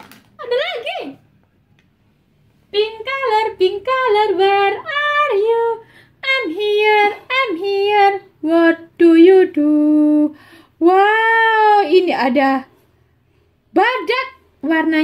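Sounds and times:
woman singing: 2.7s - 12.6s.

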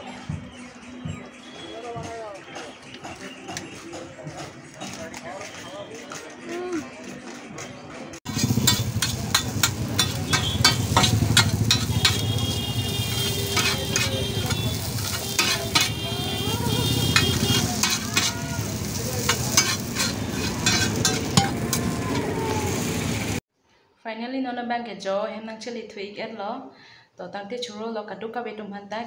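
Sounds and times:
metal spatula scraping pan: 8.3s - 16.1s, 17.0s - 21.9s
oil sizzling: 8.3s - 23.4s.

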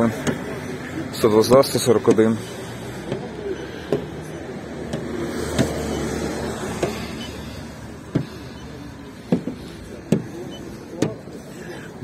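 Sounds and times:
soft irregular taps: 3.9s - 6.0s, 8.0s - 11.3s.

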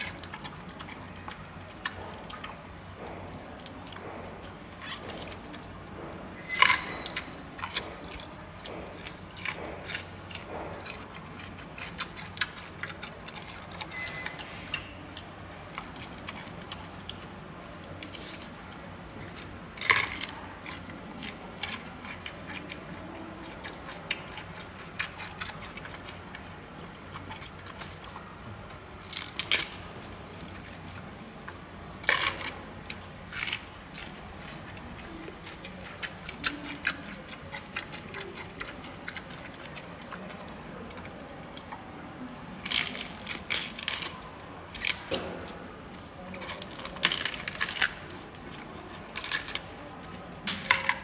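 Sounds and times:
panda chewing bamboo: 0.0s - 51.0s
bamboo snapping: 42.6s - 45.5s, 46.4s - 48.0s.

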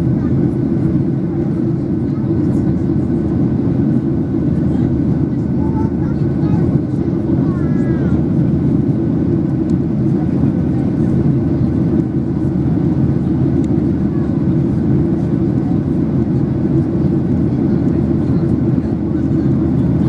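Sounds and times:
airplane cabin noise: 0.0s - 20.0s.

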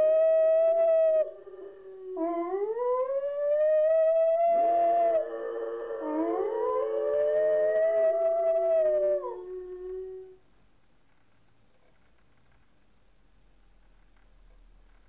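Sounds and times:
dogs howling: 0.0s - 10.3s.

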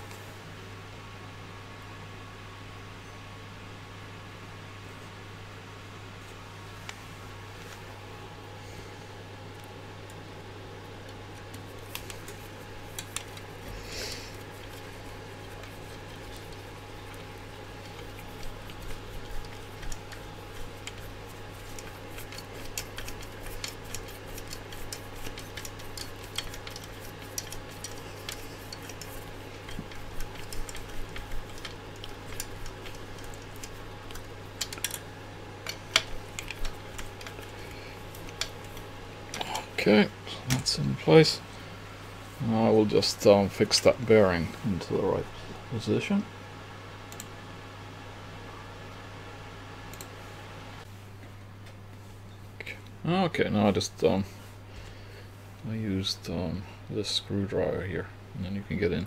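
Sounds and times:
steady low hum: 0.0s - 59.0s.

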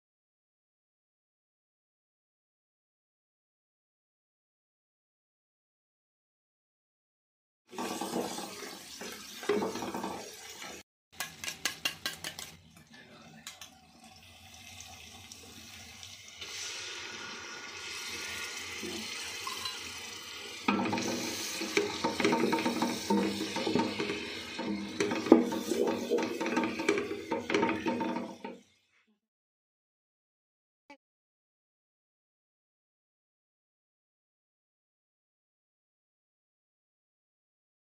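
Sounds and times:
oil sizzling: 7.7s - 29.0s
wooden spoon stirring and scraping: 20.7s - 28.6s.

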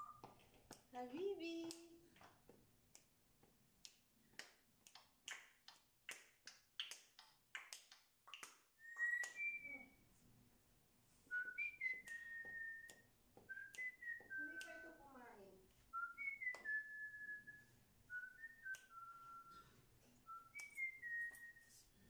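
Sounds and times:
parrot whistling: 8.8s - 10.0s, 11.3s - 12.9s, 15.9s - 19.7s.

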